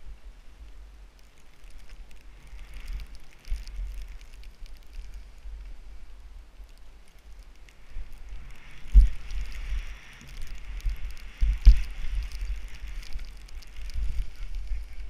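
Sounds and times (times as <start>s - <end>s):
wind rumble on microphone: 0.0s - 15.0s
skis hissing through snow: 7.6s - 15.0s.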